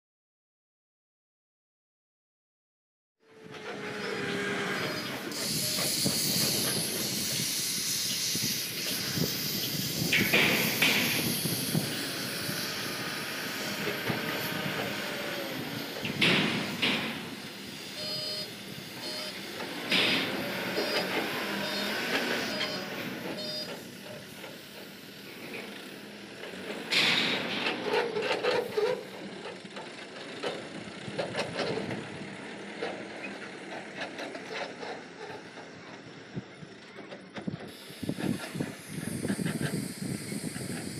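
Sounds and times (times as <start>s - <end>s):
crane diesel engine running: 3.2s - 40.9s
reversing alarm beeps: 4.8s - 6.6s, 17.9s - 24.3s
short hissing bursts: 5.1s - 27.5s, 37.7s - 40.9s.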